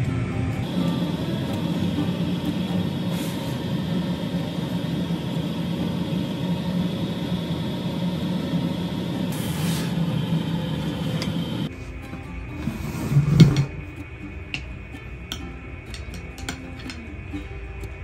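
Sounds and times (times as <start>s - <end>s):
low mechanical hum with whine: 0.0s - 18.0s
short hiss: 3.0s - 3.7s, 9.3s - 10.1s.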